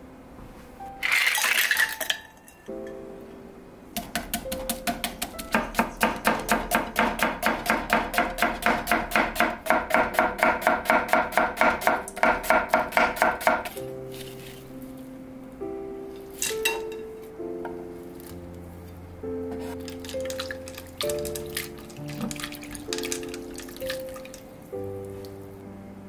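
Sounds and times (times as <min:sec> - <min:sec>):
knife chopping on wooden board: 0:04.0 - 0:13.8.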